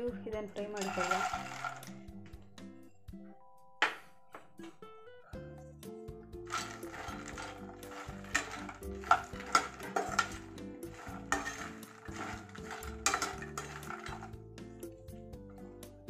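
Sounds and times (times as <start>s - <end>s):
background music: 0.0s - 16.0s
metal spatula scraping pan: 0.8s - 1.9s, 6.5s - 14.4s.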